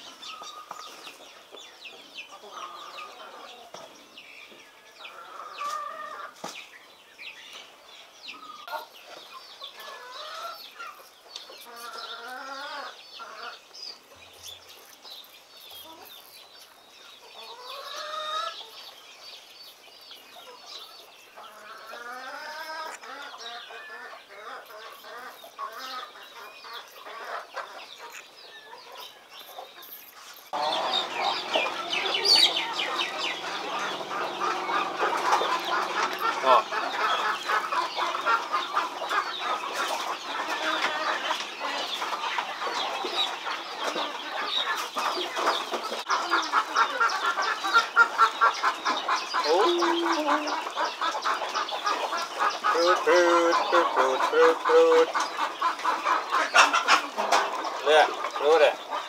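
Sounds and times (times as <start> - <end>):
chickens clucking: 0.0 - 59.0
small birds chirping: 0.0 - 59.0.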